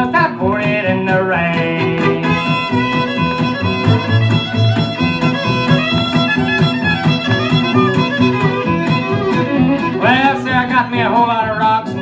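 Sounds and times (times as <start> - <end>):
fiddle leading country music: 0.0 - 12.0
steady rhythm backing: 1.6 - 11.2.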